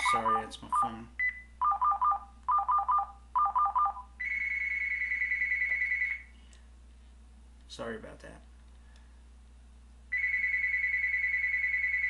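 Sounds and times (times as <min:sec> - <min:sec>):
phone ringtone beeping: 0:00.0 - 0:00.5, 0:01.2 - 0:06.3, 0:10.1 - 0:12.0.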